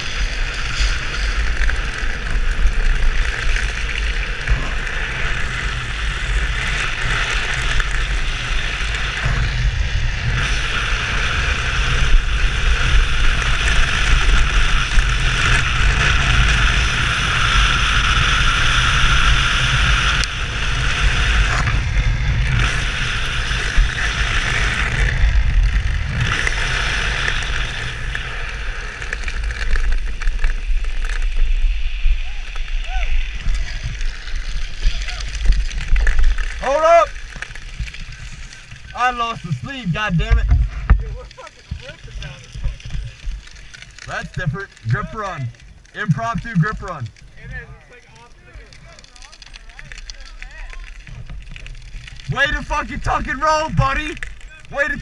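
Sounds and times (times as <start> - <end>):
wheels scraping on asphalt: 0.0 - 55.0
wind rumble on microphone: 0.0 - 55.0.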